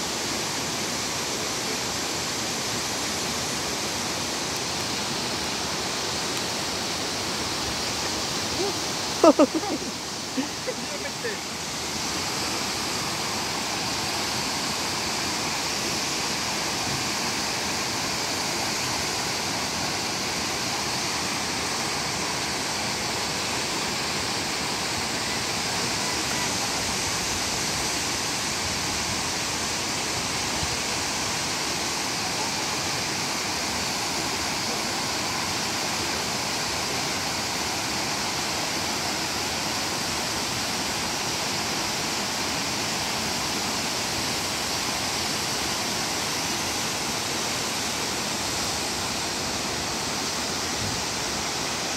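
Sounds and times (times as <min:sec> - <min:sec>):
waterfall rushing: 0:00.0 - 0:51.9.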